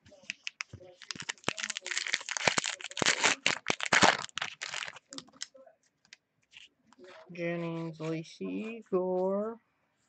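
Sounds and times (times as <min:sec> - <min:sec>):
foil wrapper crinkling and tearing: 0:00.9 - 0:05.5.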